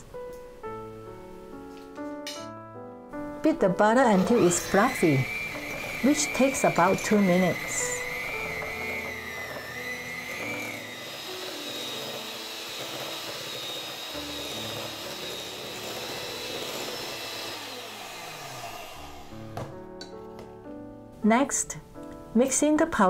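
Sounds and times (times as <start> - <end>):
electric mixer motor whine: 3.9 - 19.8.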